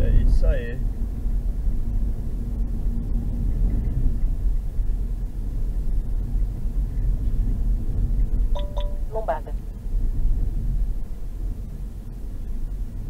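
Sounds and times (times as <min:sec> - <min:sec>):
road and engine rumble: 0:00.0 - 0:13.0.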